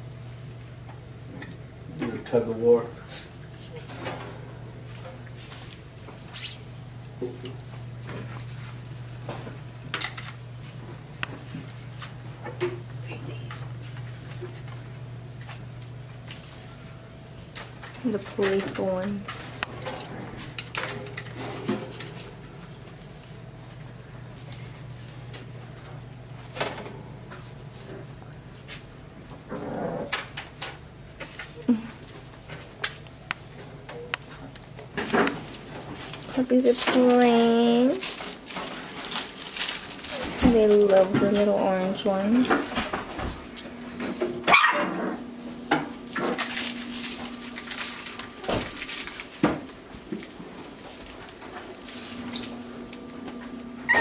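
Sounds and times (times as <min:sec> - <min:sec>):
steady low hum: 0:00.0 - 0:54.0
puppy yelps and growls: 0:44.5 - 0:45.2.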